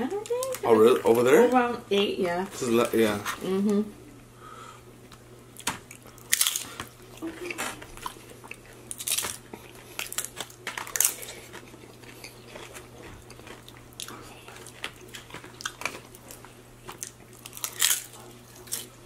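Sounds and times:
person crunching chips: 5.9 - 19.0.

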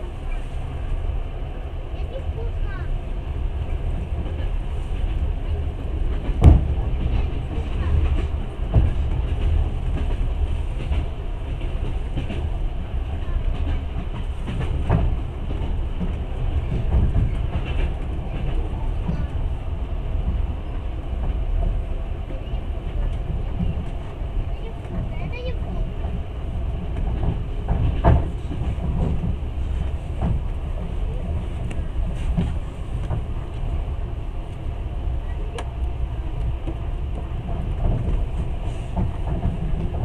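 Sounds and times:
train wheels rumbling on rail: 0.0 - 40.0.

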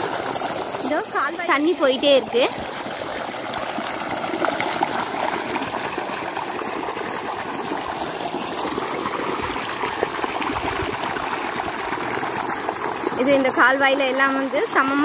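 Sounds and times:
water gushing from pipe: 0.0 - 15.0.

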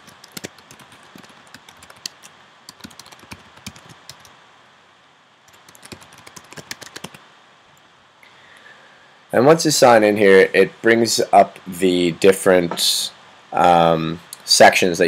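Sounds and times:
computer keyboard typing: 0.0 - 4.3, 5.5 - 7.2.

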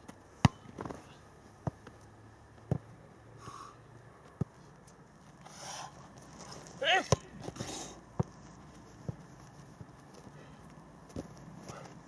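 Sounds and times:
football being kicked: 0.4 - 1.0.

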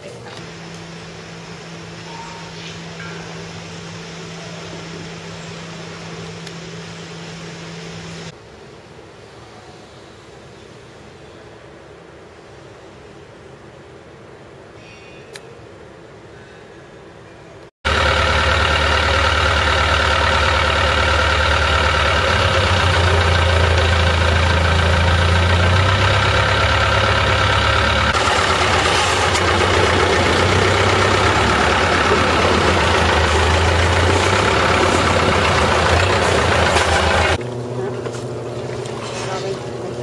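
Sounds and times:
boat engine droning: 0.4 - 8.3, 17.9 - 40.0.

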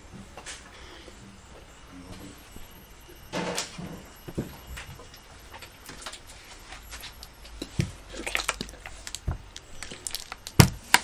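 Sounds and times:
plastic bottles crinkling: 5.9 - 11.0.

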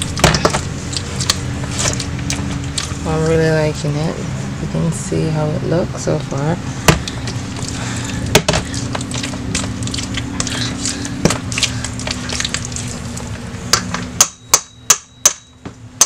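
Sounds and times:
steady low hum: 0.0 - 16.0
masher squelching beans: 7.0 - 13.4.

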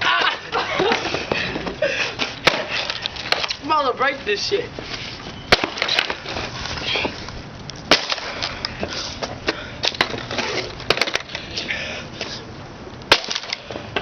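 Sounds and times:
skateboard clacking on concrete: 2.2 - 3.7.

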